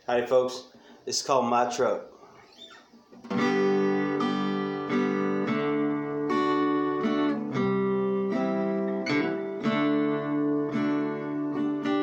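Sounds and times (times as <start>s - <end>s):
acoustic guitar strumming chords: 3.2s - 12.0s.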